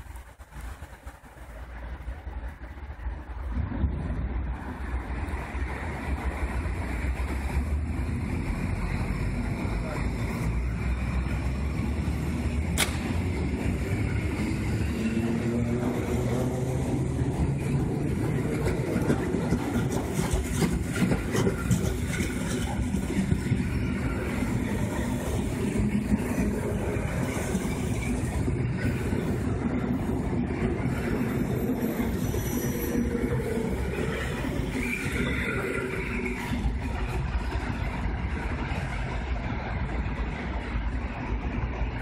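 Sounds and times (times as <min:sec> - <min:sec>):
electric train pulling away: 0:00.0 - 0:42.0.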